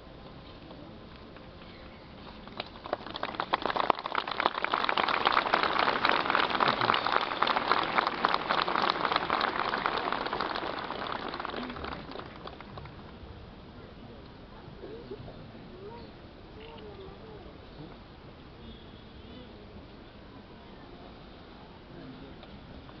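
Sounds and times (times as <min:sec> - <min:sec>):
crowd applauding: 0:02.5 - 0:13.2.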